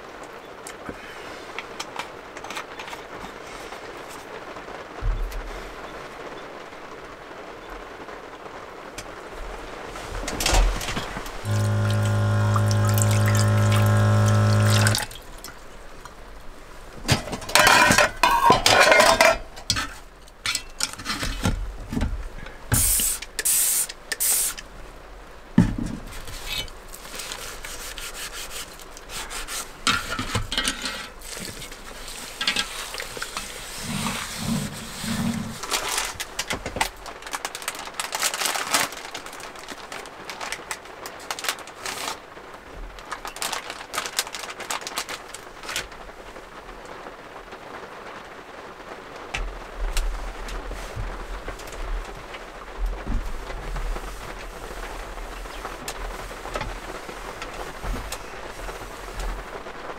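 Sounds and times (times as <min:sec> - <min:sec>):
steady low hum: 0:11.4 - 0:15.2
sponge scrubbing a plate: 0:11.5 - 0:15.1, 0:27.2 - 0:30.3, 0:30.9 - 0:35.8
dishes clinking: 0:17.4 - 0:21.4.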